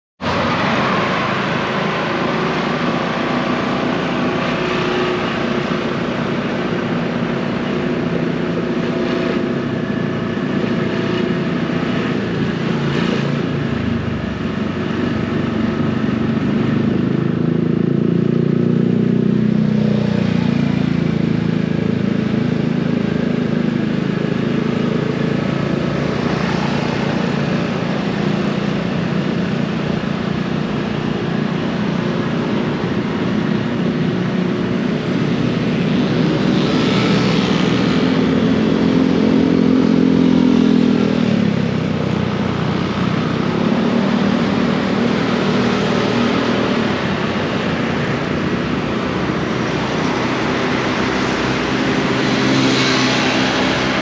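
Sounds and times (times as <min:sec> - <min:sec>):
road noise rushing: 0:00.2 - 0:54.0.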